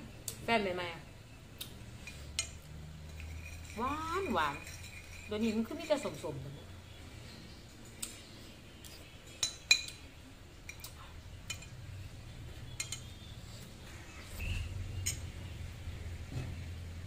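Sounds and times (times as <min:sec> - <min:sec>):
metal spoon clinking against bowl: 0:02.0 - 0:06.6, 0:08.8 - 0:11.9, 0:12.7 - 0:13.3, 0:15.0 - 0:15.3.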